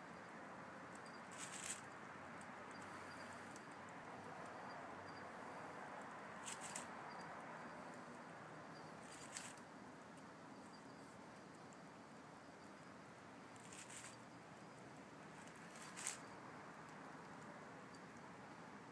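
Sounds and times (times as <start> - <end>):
faint steady hiss: 0.0 - 18.9
dry leaves crackling: 1.3 - 1.8, 6.4 - 6.9, 9.0 - 9.6, 13.6 - 14.1, 15.4 - 16.2.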